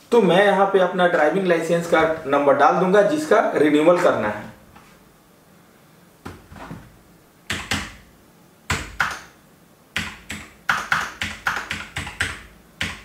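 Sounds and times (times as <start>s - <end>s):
keyboard typing: 7.5s - 8.0s, 8.7s - 9.4s, 10.0s - 13.0s.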